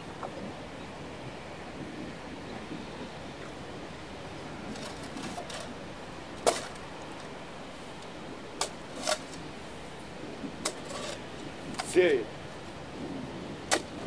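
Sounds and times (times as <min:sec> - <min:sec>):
shovel striking stony ground: 0:06.4 - 0:06.8, 0:13.7 - 0:14.0.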